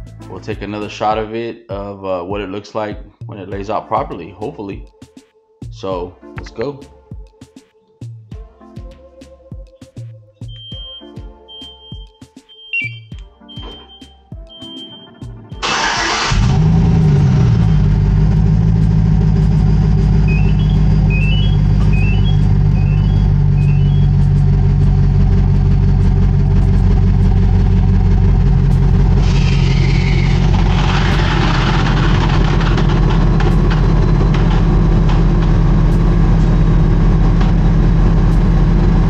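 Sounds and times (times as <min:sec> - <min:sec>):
truck engine starting and idling: 0:14.7 - 0:39.0.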